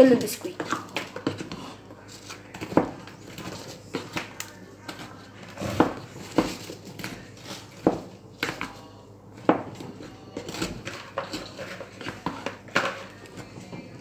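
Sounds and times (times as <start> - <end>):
wooden spoon stirring in saucepan: 0.0 - 14.0.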